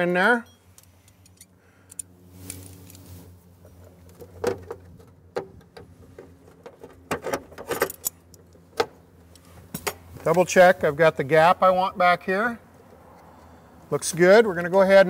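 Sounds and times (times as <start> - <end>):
metallic clicks of pliers: 0.8 - 2.6.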